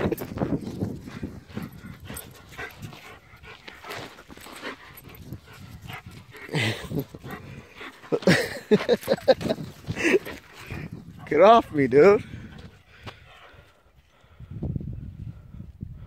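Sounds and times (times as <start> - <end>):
faint scuffling on dirt: 0.1 - 11.4.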